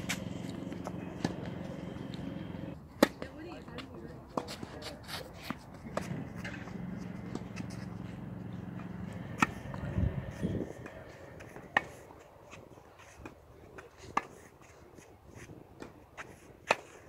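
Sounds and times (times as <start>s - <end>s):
steady low hum: 0.0s - 2.8s, 5.6s - 12.5s
tennis ball racquet strikes: 0.0s - 3.2s, 5.9s - 9.8s.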